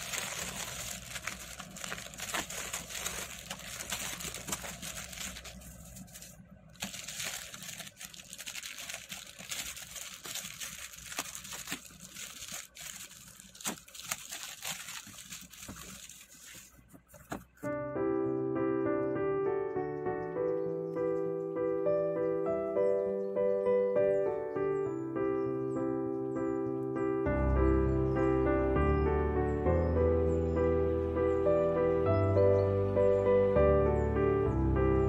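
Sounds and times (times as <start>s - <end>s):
plastic wrapping crinkling: 0.0s - 17.7s.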